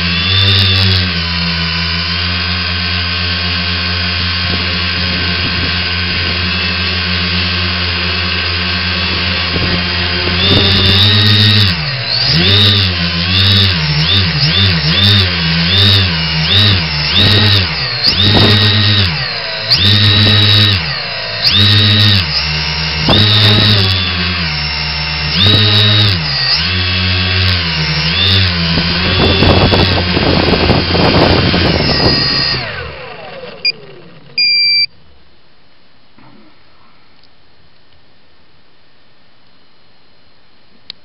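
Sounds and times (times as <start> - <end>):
drone motors and propellers droning: 0.0 - 34.9
motors spooling down whine: 0.0 - 34.9
short electronic beeps: 34.4 - 34.9.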